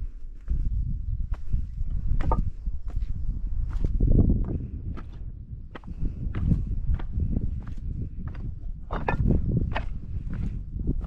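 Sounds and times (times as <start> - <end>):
footsteps on a trail: 0.4 - 11.0
low rumble: 8.0 - 11.0.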